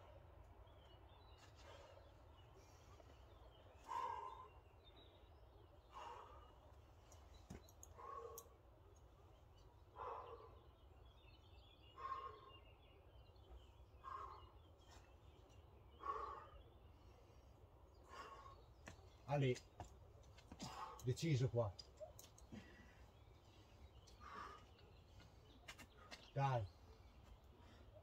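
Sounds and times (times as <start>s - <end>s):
person breathing heavily: 3.8s - 4.6s, 5.9s - 6.6s, 24.1s - 25.4s.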